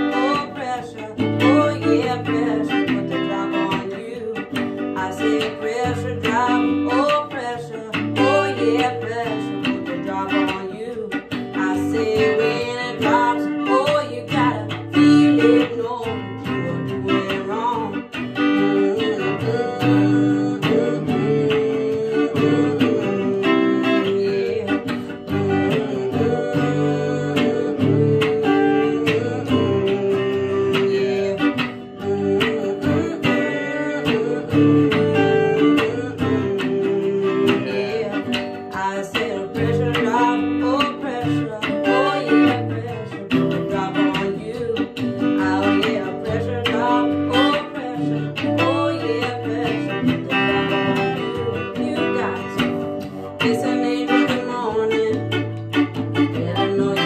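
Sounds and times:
acoustic guitar playing: 0.0 - 57.0
electric guitar playing: 0.0 - 57.0
person singing: 0.0 - 57.0.

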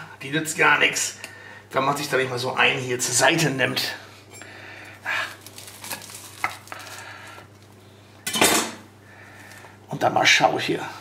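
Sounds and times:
puff pastry crackling and crunching: 4.9 - 7.8.

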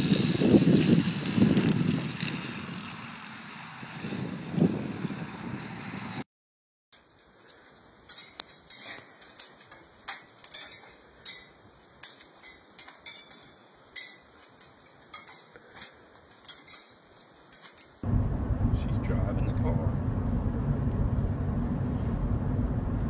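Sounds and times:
wind rumbling on microphone: 0.0 - 6.2, 18.0 - 23.0
metal gate clinking: 8.1 - 15.6.

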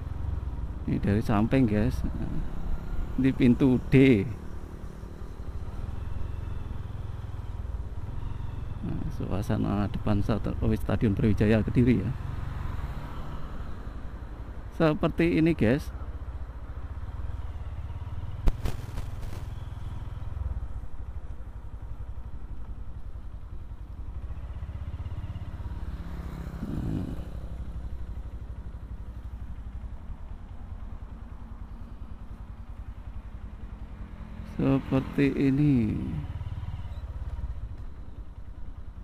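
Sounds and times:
motorcycle engine running: 16.2 - 39.0.

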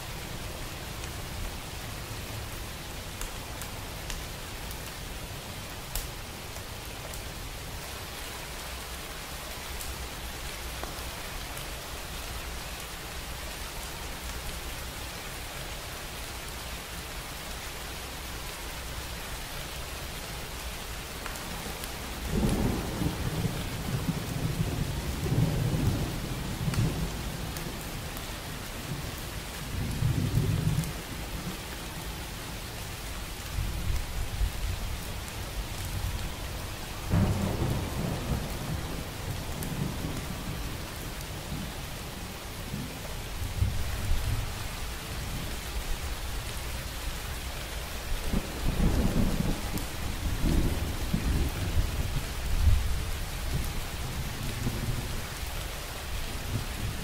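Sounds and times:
steady rain hiss: 0.0 - 57.0
thunder rumbling: 37.0 - 41.0.

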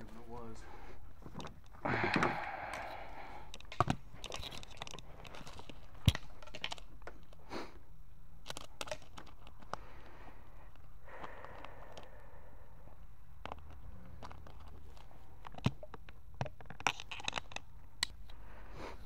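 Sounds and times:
clicks and knocks of handling: 1.2 - 7.4, 8.4 - 9.9, 13.4 - 18.4.

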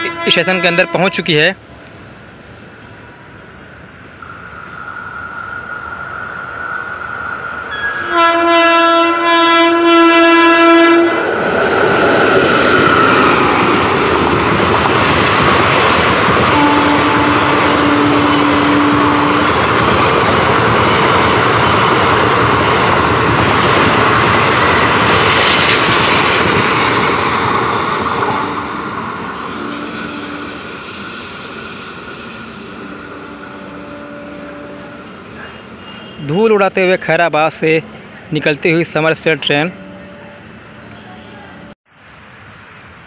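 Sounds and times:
train horn: 0.0 - 1.3, 7.7 - 11.3, 16.4 - 19.7, 29.6 - 30.6, 32.8 - 36.2, 39.3 - 41.8
train wheels rushing on rails: 1.6 - 39.5.

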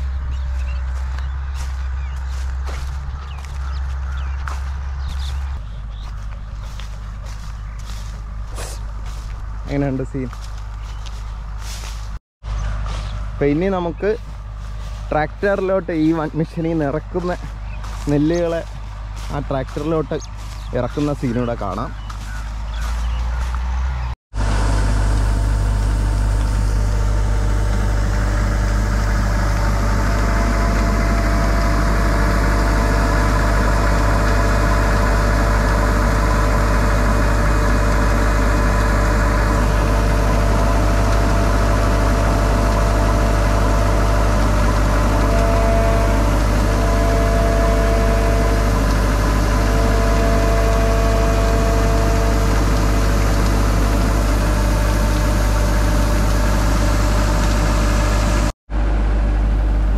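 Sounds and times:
combine harvester engine humming: 0.0 - 59.9.

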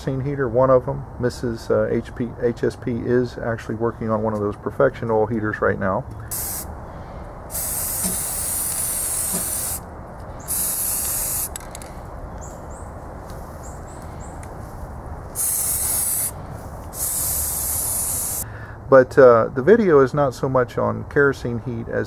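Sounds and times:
spray paint can hissing: 6.3 - 6.7, 7.5 - 11.9, 15.4 - 18.4.

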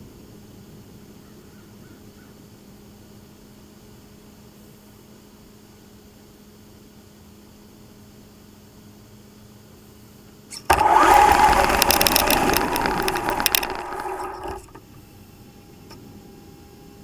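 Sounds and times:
clicks and rattles: 10.6 - 15.0
electric motor running hard: 10.7 - 14.8.

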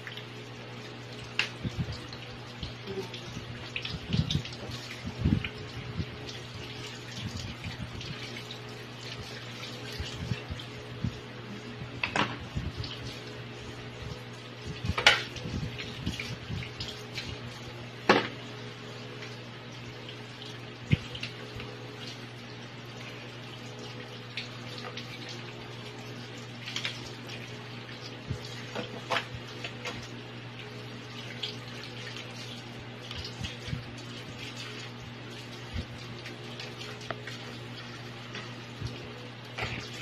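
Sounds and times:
steady hum: 0.0 - 40.0
water running in a sink: 0.0 - 40.0.

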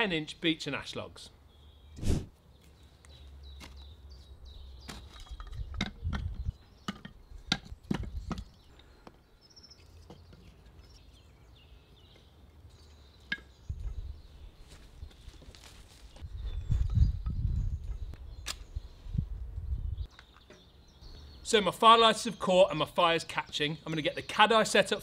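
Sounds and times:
logs clunking on wood and metal: 4.8 - 8.7.

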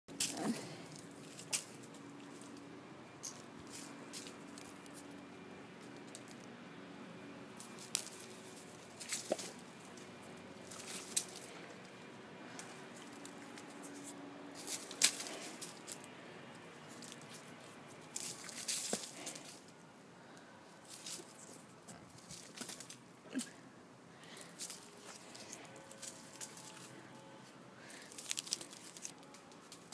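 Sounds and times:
dry leaves crunching and rustling: 3.2 - 5.1, 7.6 - 11.9, 12.5 - 19.7, 20.8 - 23.0, 24.3 - 27.0, 27.8 - 29.9.

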